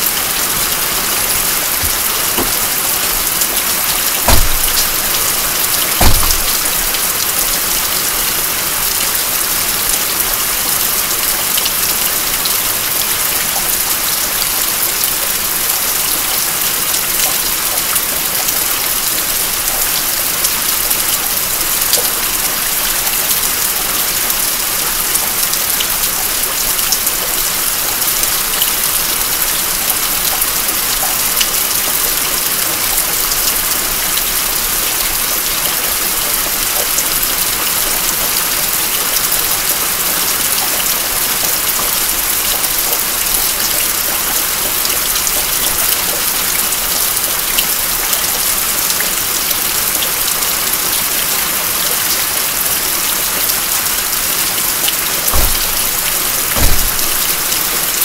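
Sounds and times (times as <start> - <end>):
steady rain hiss: 0.0 - 58.0
water dripping off roof edge: 0.1 - 51.1, 52.0 - 58.0.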